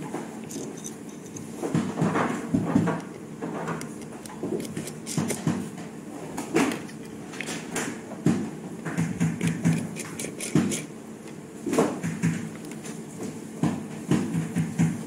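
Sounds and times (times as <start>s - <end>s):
screwdriver clicks and taps: 2.8s - 5.6s, 9.0s - 11.4s.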